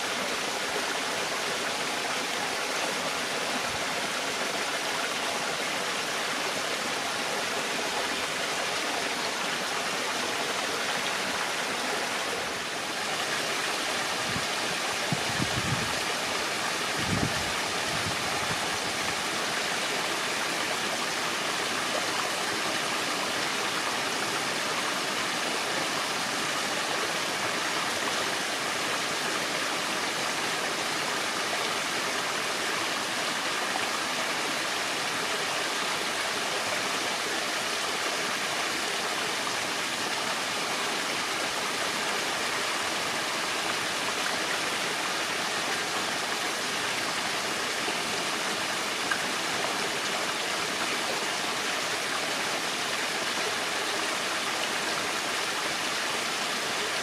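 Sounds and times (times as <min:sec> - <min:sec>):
stream flowing over rocks: 0:00.0 - 0:57.0.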